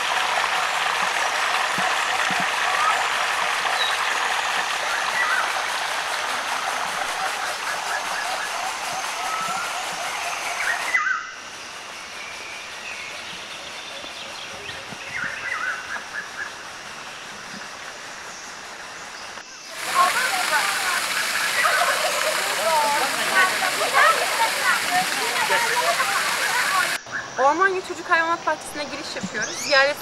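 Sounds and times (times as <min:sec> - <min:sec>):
water pouring from flume: 0:00.0 - 0:11.0, 0:19.7 - 0:27.0
small birds chirping: 0:28.8 - 0:30.0.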